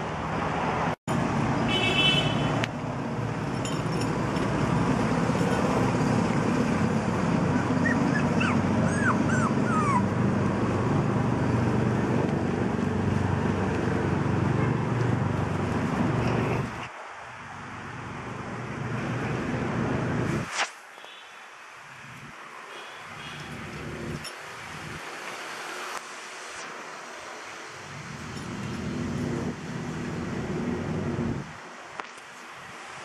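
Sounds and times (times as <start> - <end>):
steady background noise: 0.0 - 33.0
puppies yipping: 7.4 - 10.2.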